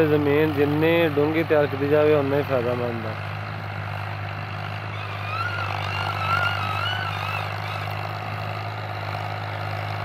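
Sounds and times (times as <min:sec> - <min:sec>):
diesel tractor engine droning: 0:00.0 - 0:10.0
wavering high whistle: 0:04.9 - 0:08.0.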